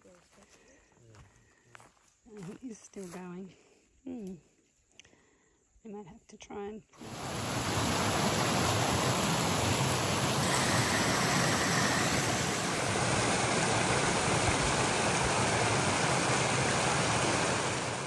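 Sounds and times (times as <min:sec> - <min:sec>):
water rushing: 0:07.0 - 0:18.0.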